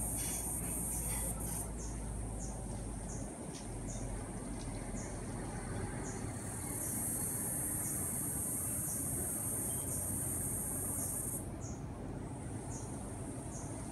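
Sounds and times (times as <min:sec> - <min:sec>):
insects buzzing: 0:00.0 - 0:02.5, 0:06.0 - 0:13.9.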